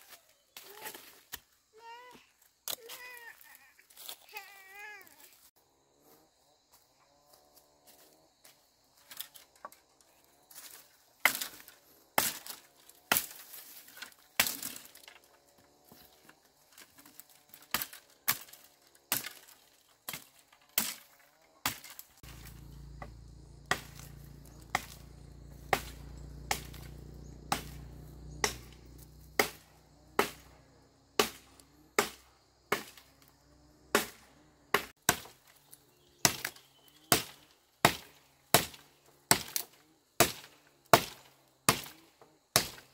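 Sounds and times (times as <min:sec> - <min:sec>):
dry branches being chopped: 0:10.5 - 0:33.3, 0:33.9 - 0:42.9.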